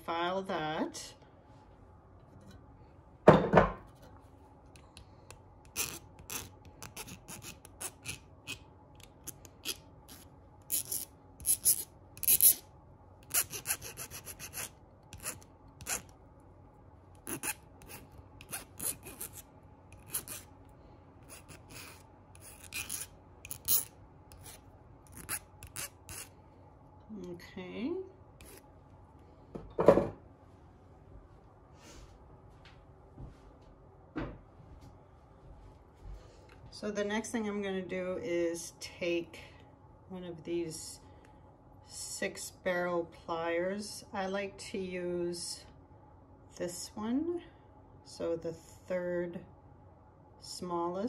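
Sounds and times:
hand file rasping on wire: 5.6s - 12.6s, 13.2s - 16.1s, 17.2s - 19.4s, 20.0s - 20.5s, 21.2s - 26.3s.

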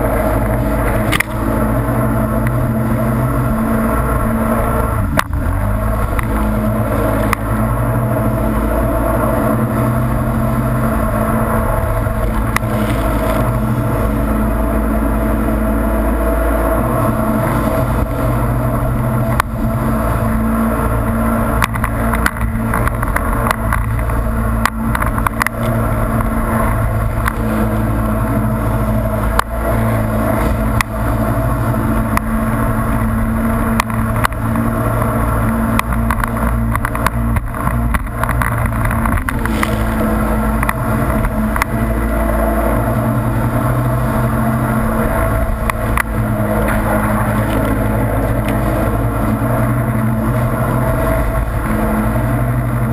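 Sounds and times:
hull slapping water: 0.0s - 52.9s
jet ski engine running: 0.0s - 52.9s
wind: 0.0s - 52.9s
water spray rushing: 17.2s - 49.8s.

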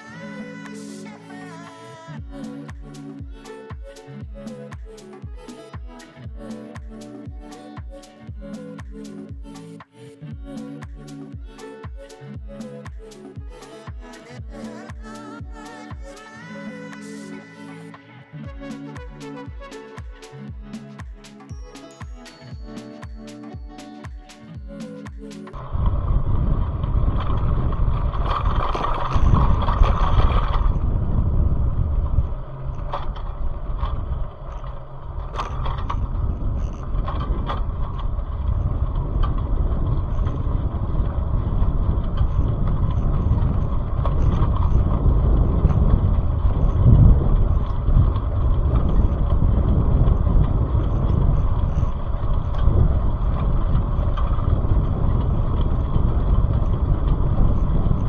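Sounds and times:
road and wind rumble: 25.5s - 58.0s.

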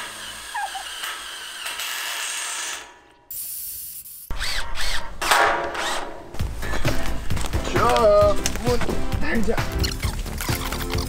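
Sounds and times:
music: 6.3s - 11.0s.

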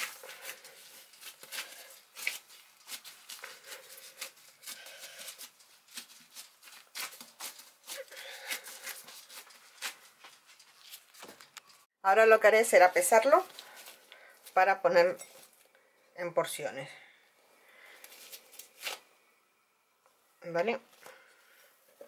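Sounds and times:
gloved hands kneading dough: 0.0s - 15.7s.

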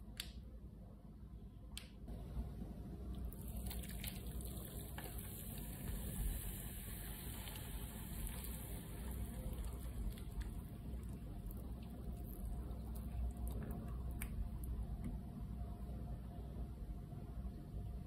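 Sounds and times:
hot water pouring into cup: 3.3s - 13.6s.

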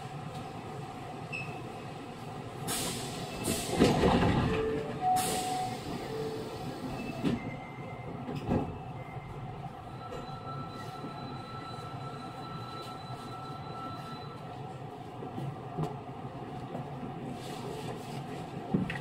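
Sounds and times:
train car rumbling: 0.0s - 19.0s.

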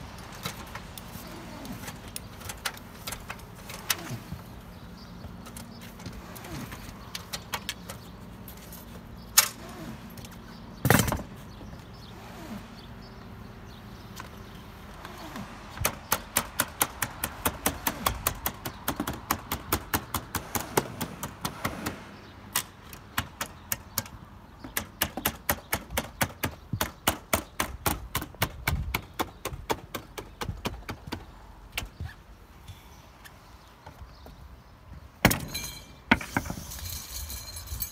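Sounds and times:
sharp metallic taps on roof panels: 15.4s - 32.2s, 35.2s - 36.6s.

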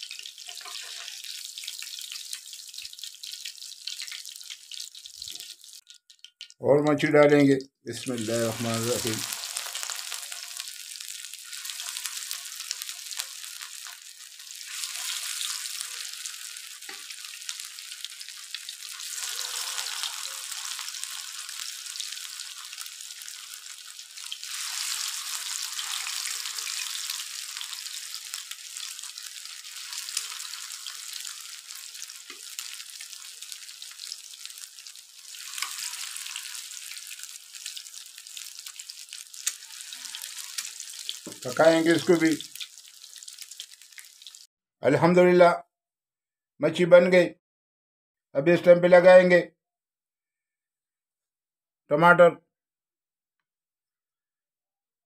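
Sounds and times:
fish frying in hot oil: 0.0s - 6.6s, 8.1s - 44.5s.

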